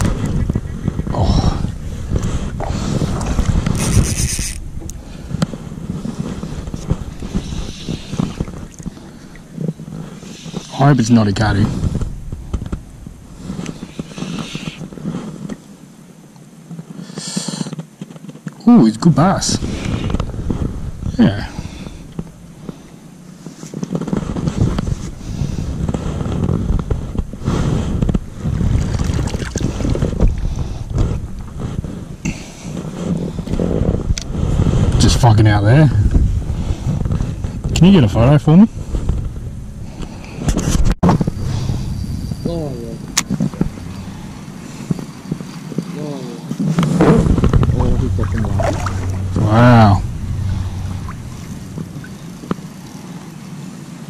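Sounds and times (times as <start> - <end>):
wind on microphone: 0.0 - 16.0, 19.2 - 54.0
fishing reel drag rattling: 3.7 - 4.6
reel and rod handling clicks: 3.7 - 4.6.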